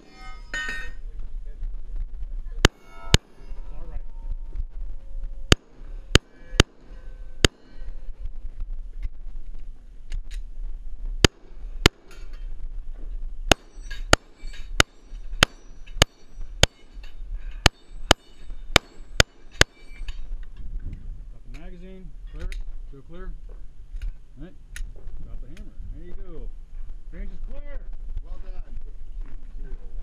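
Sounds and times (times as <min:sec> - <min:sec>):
steel plates ringing: 0:00.0 - 0:01.1, 0:02.6 - 0:04.4, 0:13.5 - 0:20.4
pistol shots: 0:05.5 - 0:08.0.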